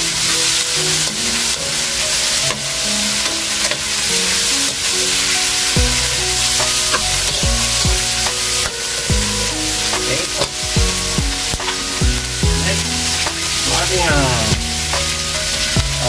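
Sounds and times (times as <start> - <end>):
background music with held notes: 0.0 - 16.0
vegetables sizzling in wok: 0.0 - 16.0
deep falling bass notes: 5.8 - 16.0.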